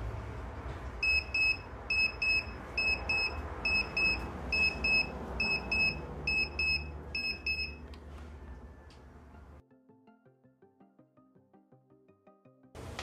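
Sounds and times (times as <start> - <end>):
alarm clock double beeps: 1.0 - 7.8.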